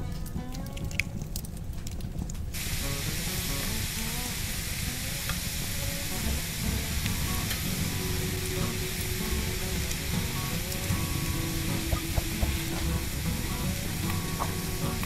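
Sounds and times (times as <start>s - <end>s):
food sizzling in hot oil: 2.5s - 15.0s.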